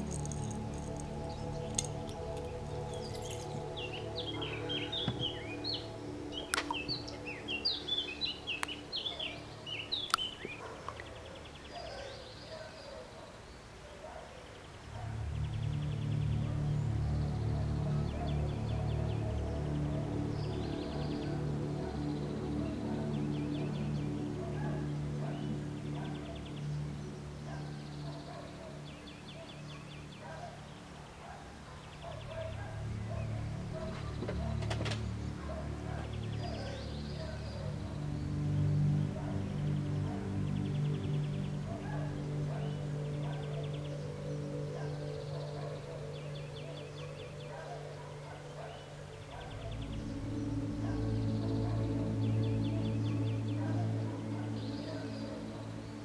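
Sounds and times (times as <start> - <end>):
low steady hum: 0.0 - 11.8
small birds chirping: 0.0 - 56.0.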